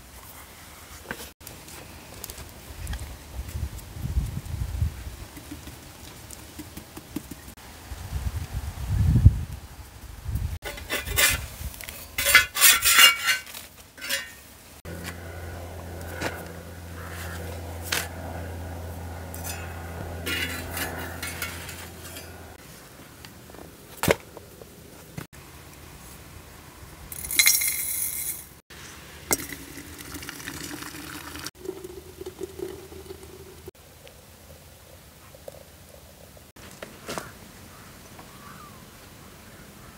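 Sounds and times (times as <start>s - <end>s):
cookware and dishes clinking: 12.2s - 14.4s
water pouring into teapot: 29.3s - 33.7s.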